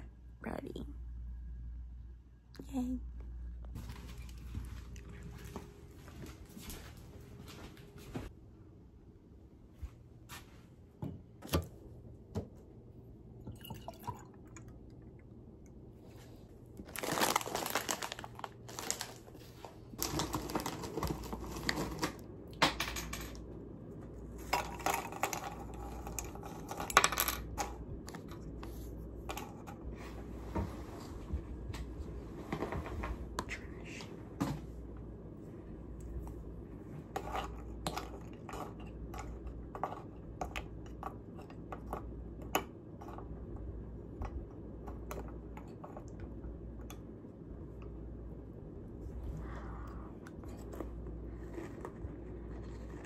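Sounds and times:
milk pouring into glass: 13.4 - 15.0.

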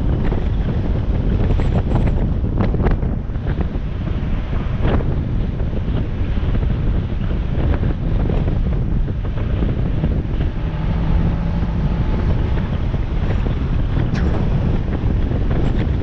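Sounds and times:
car engine running: 0.0 - 16.0
wind buffeting microphone: 0.0 - 16.0
steady tone: 9.1 - 16.0.

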